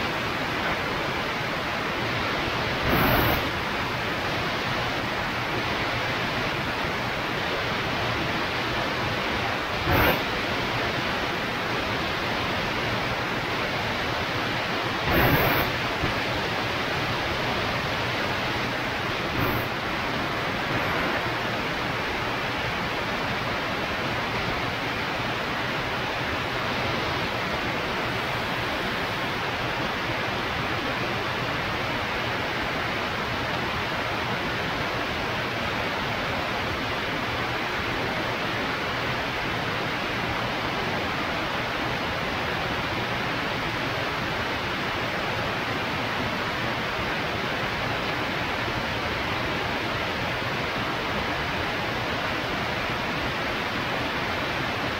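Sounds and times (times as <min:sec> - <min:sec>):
rushing airflow: 0:02.1 - 0:04.8, 0:09.7 - 0:11.1, 0:15.0 - 0:16.7, 0:18.3 - 0:22.4.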